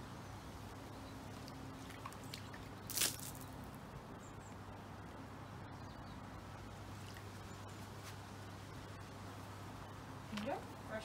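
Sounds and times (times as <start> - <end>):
water splash: 1.9 - 3.5.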